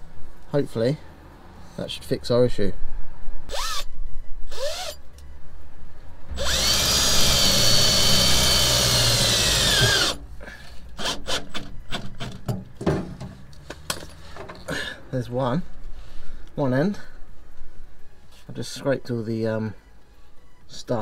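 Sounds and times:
cordless drill driving screw into metal: 6.4s - 10.2s.

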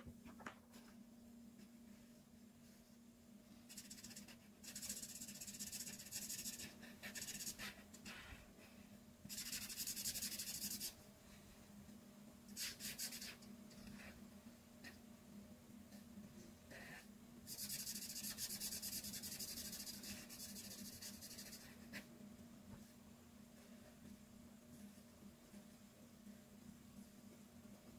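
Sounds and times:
faint low hum: 0.0s - 27.9s
marker scratching on paper: 3.7s - 7.8s, 9.3s - 11.0s, 12.5s - 14.2s, 16.7s - 22.1s.

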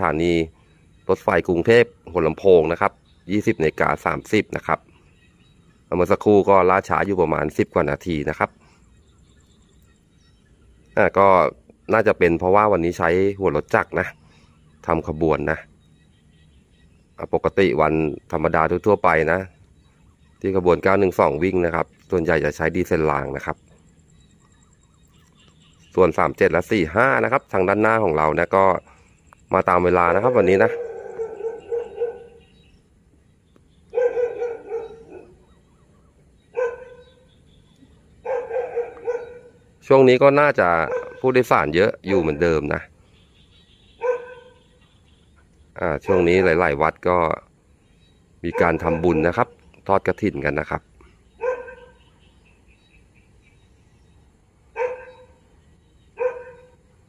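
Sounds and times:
faint high chirping: 0.0s - 57.0s
dog barking: 30.1s - 32.5s, 33.9s - 35.5s, 36.5s - 37.3s, 38.2s - 39.6s, 40.6s - 41.4s, 44.0s - 44.8s, 45.9s - 46.6s, 48.5s - 49.6s, 51.4s - 52.1s, 54.7s - 55.4s, 56.1s - 56.8s.

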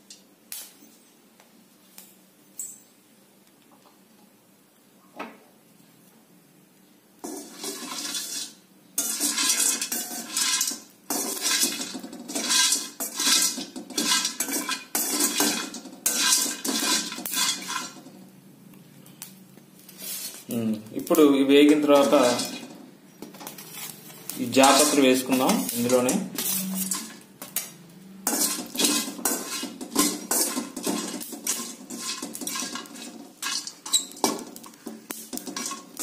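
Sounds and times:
metal spatula scraping a pan: 7.2s - 18.2s, 21.5s - 22.8s, 23.4s - 27.3s, 28.2s - 36.0s.

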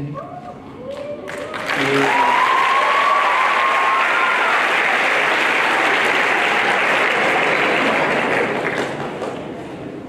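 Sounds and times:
audience applauding: 1.3s - 9.7s
person whooping: 1.9s - 4.6s.

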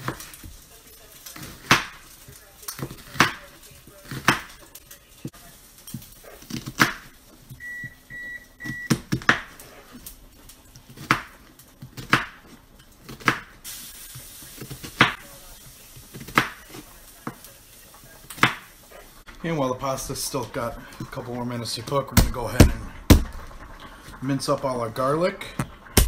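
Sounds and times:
knife chopping on cutting board: 1.4s - 2.0s, 2.8s - 3.4s, 4.0s - 4.5s, 6.3s - 7.1s, 8.9s - 9.6s, 10.9s - 13.5s, 16.1s - 17.4s, 18.3s - 18.7s.

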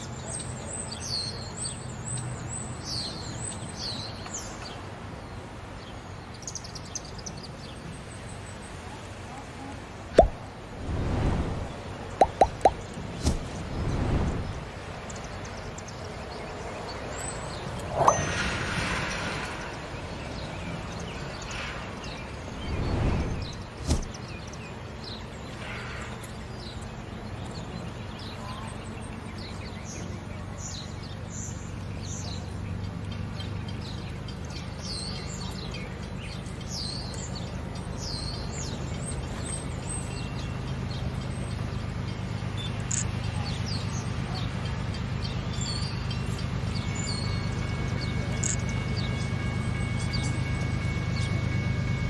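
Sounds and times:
small birds chirping: 0.0s - 51.9s
car passing: 17.2s - 20.7s, 21.6s - 24.2s
diesel locomotive rumble: 39.6s - 52.0s.

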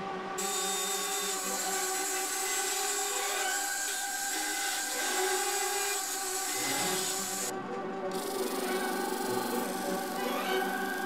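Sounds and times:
bandsaw cutting wood: 0.4s - 7.5s, 8.1s - 11.0s.

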